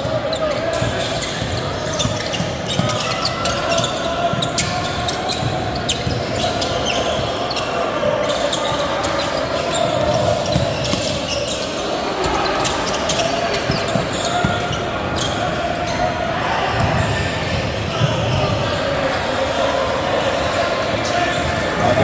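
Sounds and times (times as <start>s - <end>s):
murmur of voices: 0.0s - 22.0s
sneakers squeaking on hardwood floor: 0.1s - 16.2s.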